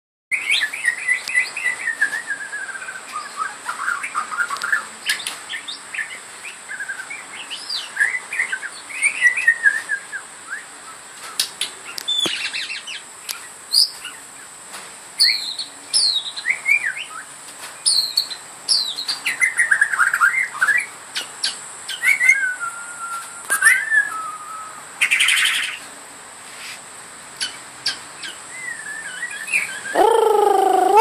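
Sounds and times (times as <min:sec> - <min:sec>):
bird singing whistled notes: 0:00.3 - 0:04.6, 0:05.5 - 0:11.0, 0:15.2 - 0:25.8, 0:27.4 - 0:31.0
sharp high bird chirps: 0:29.4 - 0:31.0.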